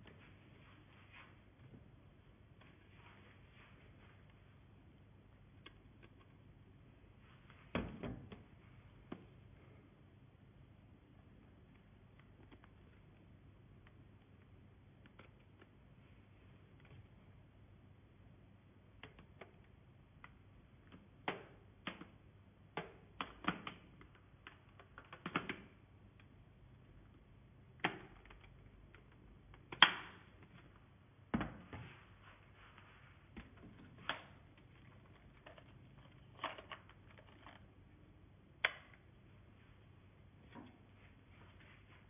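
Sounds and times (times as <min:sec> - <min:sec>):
plastic parts clicking and knocking: 0:19.0 - 0:26.3, 0:33.4 - 0:37.8.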